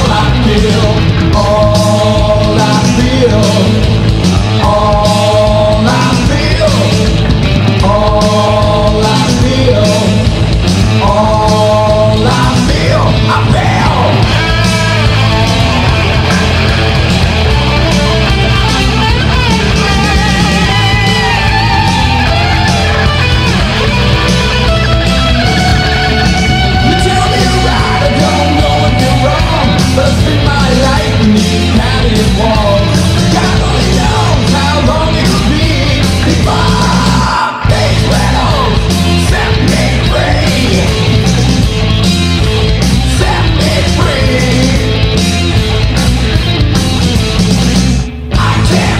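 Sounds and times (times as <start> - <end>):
person singing: 0.0 - 16.9, 25.5 - 41.3, 43.0 - 45.1, 48.3 - 48.9
metal band playing: 0.0 - 48.9.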